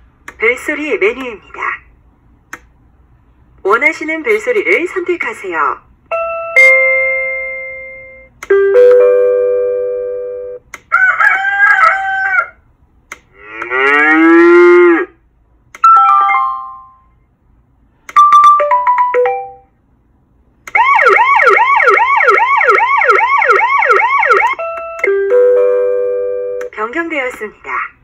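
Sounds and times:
doorbell chime: 0:06.2 - 0:10.4, 0:15.9 - 0:17.1, 0:18.2 - 0:19.7
rooster crowing: 0:10.9 - 0:12.6
cow mooing: 0:13.4 - 0:15.2
wailing siren tone: 0:20.7 - 0:25.2.

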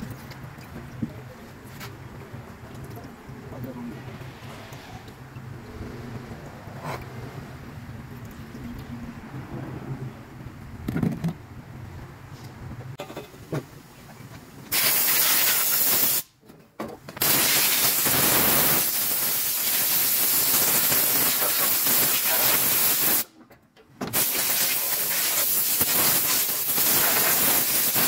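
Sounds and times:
spray gun hissing: 0:14.7 - 0:16.3, 0:17.2 - 0:23.3, 0:24.2 - 0:28.0.

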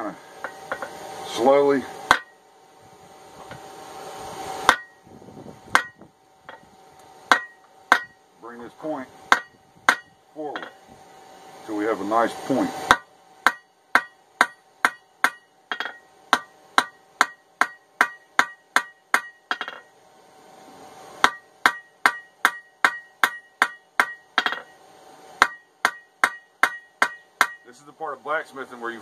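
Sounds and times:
hammer striking steel on anvil: 0:02.1 - 0:02.4, 0:04.6 - 0:05.0, 0:05.7 - 0:06.7, 0:07.3 - 0:08.2, 0:09.3 - 0:10.8, 0:12.9 - 0:19.9, 0:21.2 - 0:24.8, 0:25.4 - 0:27.8.

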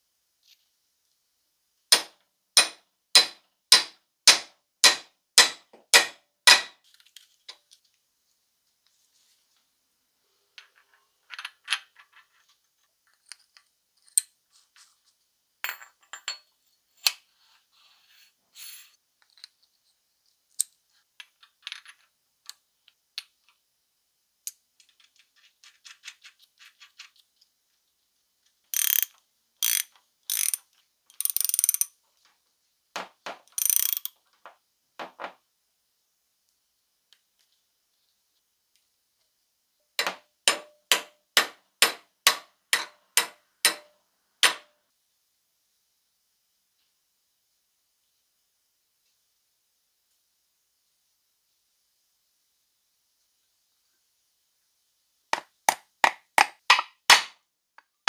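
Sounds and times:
wooden mallet tapping steel shaft: 0:02.0 - 0:06.7, 0:40.0 - 0:44.7
ratchet wrench clicking: 0:28.7 - 0:31.9, 0:33.5 - 0:34.1
small steel parts clicking: 0:28.7 - 0:32.0, 0:33.4 - 0:34.2.

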